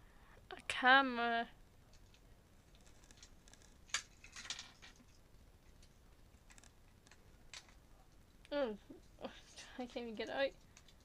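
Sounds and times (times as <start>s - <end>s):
plastic toy clicks and rattles: 1.9s - 5.2s, 6.5s - 7.8s.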